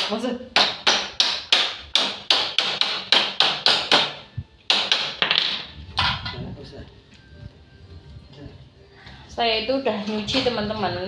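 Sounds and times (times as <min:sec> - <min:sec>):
hammer striking metal tubing: 0:00.0 - 0:06.2.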